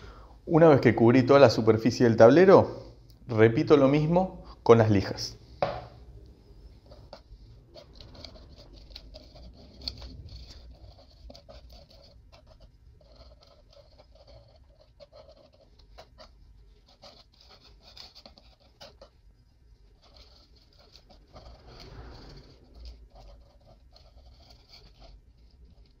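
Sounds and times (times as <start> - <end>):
spatula scraping: 6.4 - 26.0.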